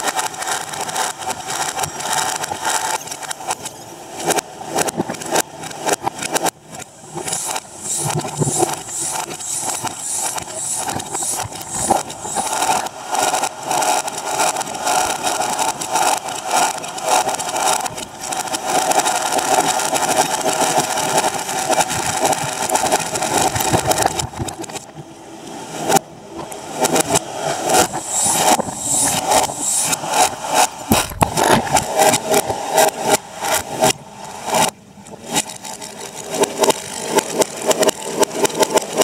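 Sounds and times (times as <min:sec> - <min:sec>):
reversed fireworks crackling: 0:00.0 - 0:24.9, 0:26.7 - 0:39.0
sharp crack: 0:26.8 - 0:39.0.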